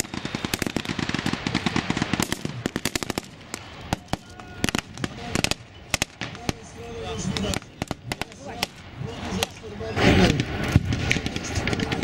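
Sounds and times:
rapid small-arms gunfire: 0.0s - 6.6s, 9.4s - 12.0s.

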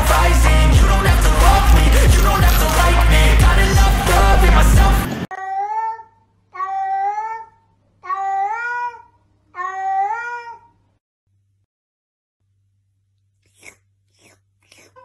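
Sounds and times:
cat meowing: 5.4s - 10.8s.

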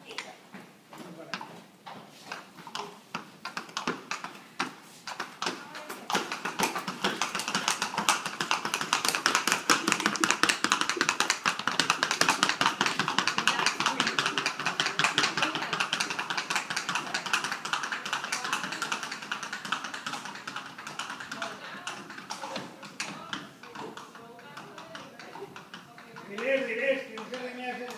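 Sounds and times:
horse hooves clattering on concrete: 0.0s - 27.9s.

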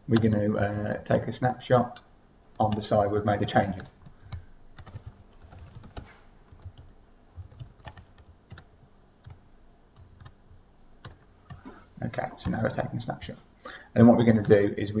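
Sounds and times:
typing on computer keyboard: 3.8s - 9.4s.

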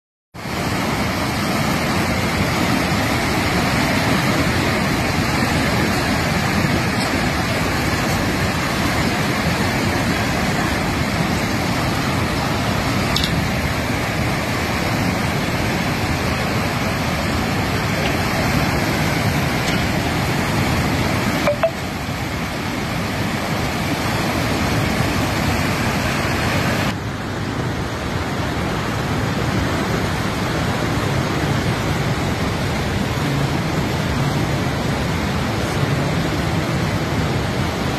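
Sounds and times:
river rushing roar: 0.4s - 37.9s.

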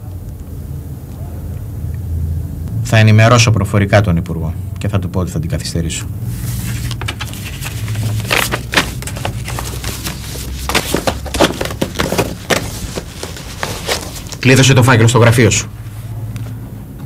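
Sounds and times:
low steady hum: 0.0s - 17.0s
clicks and rustles: 6.6s - 14.5s.

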